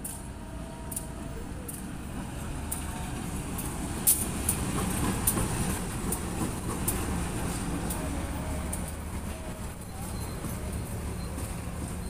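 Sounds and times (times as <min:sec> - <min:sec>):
sharp rail clicks: 0:00.0 - 0:02.0, 0:02.6 - 0:09.8
locomotive engine and wheel rumble: 0:00.0 - 0:12.0.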